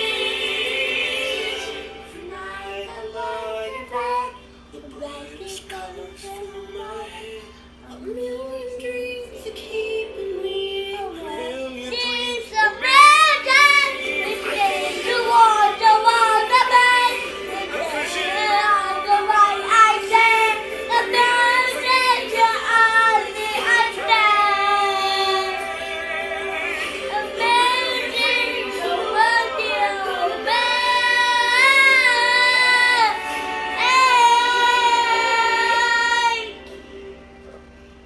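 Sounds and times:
boy singing into a microphone: 10.8 - 25.6.

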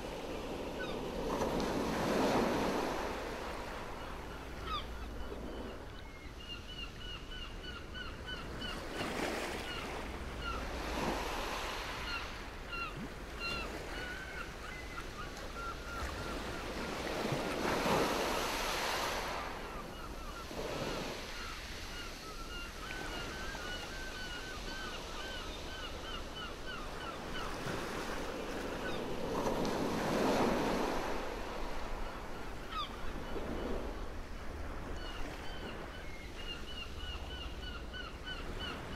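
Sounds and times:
waves washing ashore: 0.0 - 4.6, 16.0 - 21.6.

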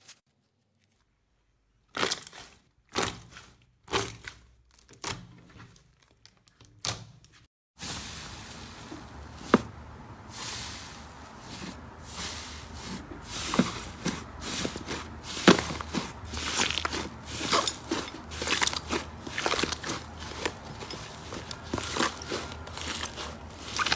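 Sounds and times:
slime squishing and crackling: 12.7 - 23.9.

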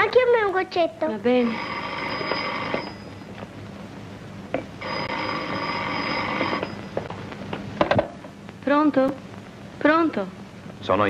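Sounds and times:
telephone bell ringing: 1.4 - 3.4, 4.8 - 7.0.

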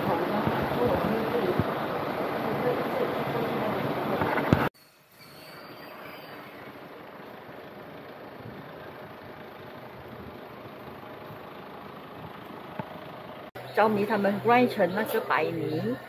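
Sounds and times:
steady background hum and rumble: 6.4 - 15.7.

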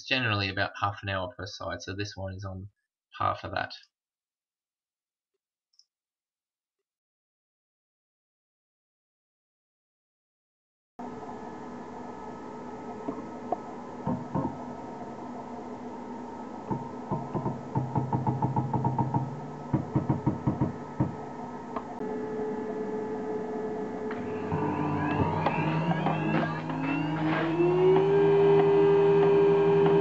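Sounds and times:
electrical hum: 11.0 - 30.0
scattered knocks: 14.0 - 14.6, 16.7 - 21.2.

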